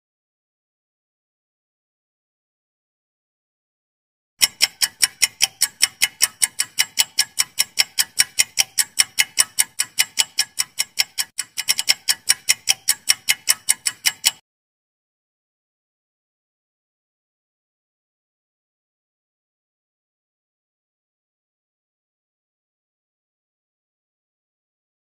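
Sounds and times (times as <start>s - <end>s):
rapid clock ticking: 4.4s - 14.4s.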